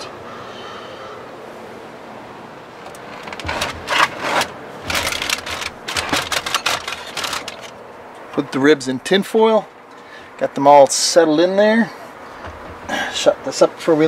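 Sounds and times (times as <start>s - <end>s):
wire racks rattling: 2.8s - 7.8s.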